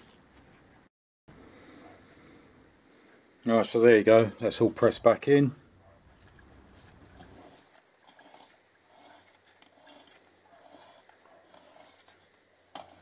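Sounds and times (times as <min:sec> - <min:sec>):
faint handling sounds: 0:05.5 - 0:13.0.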